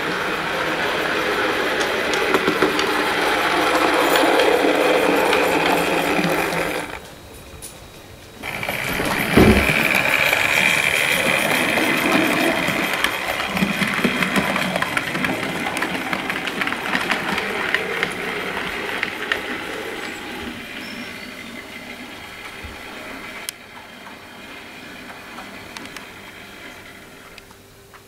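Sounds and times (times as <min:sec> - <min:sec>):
model train motor whirring: 0:00.0 - 0:07.7, 0:08.4 - 0:28.0
wheels clicking over rail joints: 0:00.0 - 0:28.0
low thump: 0:09.0 - 0:09.9.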